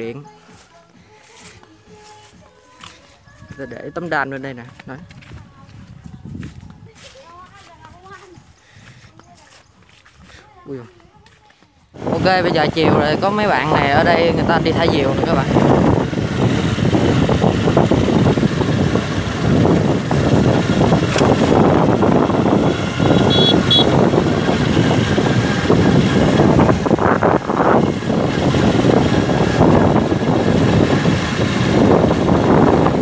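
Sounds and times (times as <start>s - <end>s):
wind blowing across microphone: 5.0s - 9.2s, 12.0s - 33.0s.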